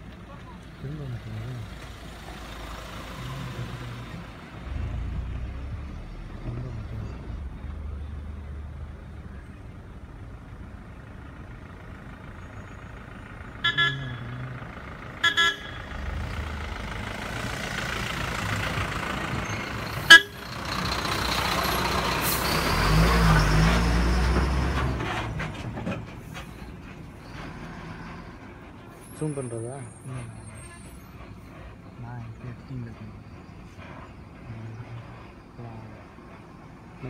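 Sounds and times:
road traffic passing: 0.0s - 37.0s
vehicle horn toots: 13.6s - 14.5s, 15.2s - 16.0s, 20.0s - 20.5s.

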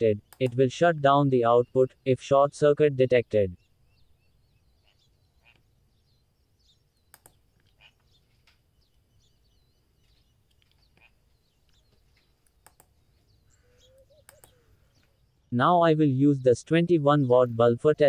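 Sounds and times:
faint bird chirps: 0.0s - 18.0s
faint clicks of clip leads: 0.2s - 0.7s, 7.0s - 8.8s, 10.0s - 15.2s.

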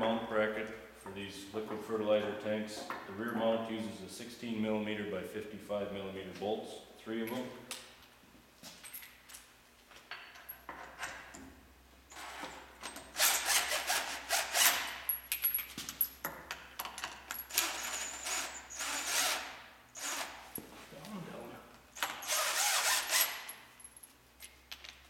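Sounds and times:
cordless drill running: 17.6s - 20.4s, 22.1s - 23.4s.

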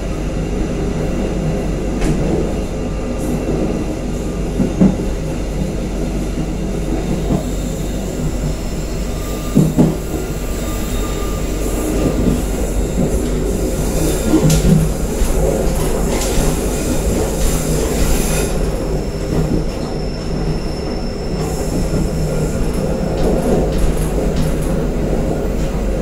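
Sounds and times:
train wheels rumbling on rails: 0.0s - 26.0s
heavy train thumps: 1.9s - 2.6s, 4.5s - 5.2s, 9.5s - 10.3s, 12.0s - 20.0s.

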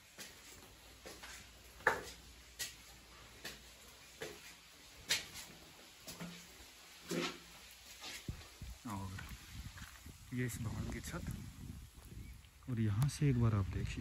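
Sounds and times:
footsteps on stone stairs: 0.0s - 10.0s.

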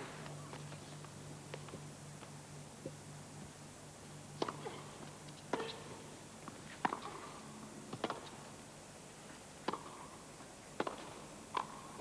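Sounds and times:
faint steady hum: 0.0s - 12.0s
racket hitting tennis ball: 6.8s - 7.3s.

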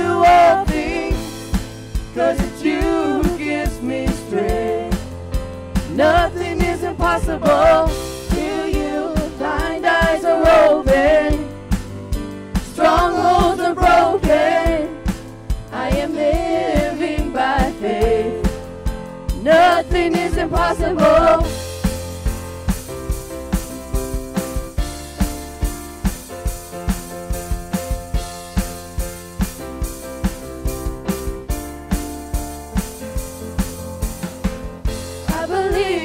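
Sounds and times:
group singing a worship song: 0.0s - 5.2s, 5.8s - 11.8s, 12.6s - 18.7s, 19.3s - 21.7s, 35.2s - 36.0s
band with steady beat: 0.0s - 36.0s.

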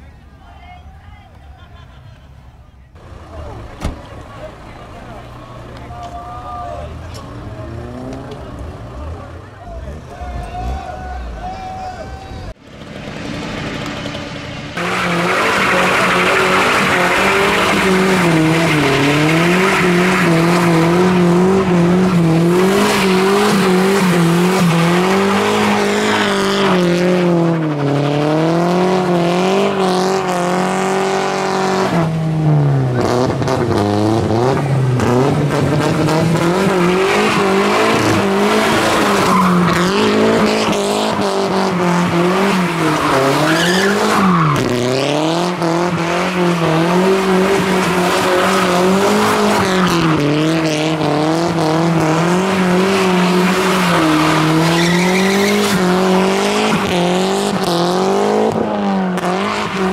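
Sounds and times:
car engine revving: 6.8s - 11.0s, 12.6s - 59.9s
tyres squealing on tarmac: 14.8s - 26.9s, 36.6s - 50.4s, 52.2s - 57.0s.

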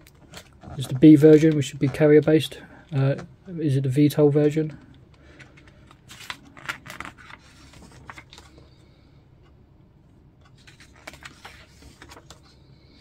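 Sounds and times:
book pages rustling: 0.1s - 2.3s, 5.1s - 8.9s, 10.4s - 12.7s.

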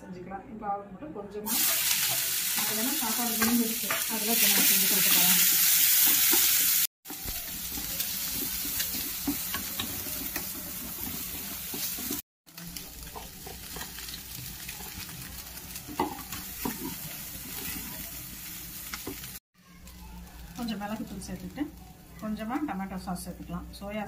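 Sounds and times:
rice sizzling in a pan: 1.5s - 23.4s
spatula scraping a pan: 3.4s - 12.2s, 12.8s - 18.3s.

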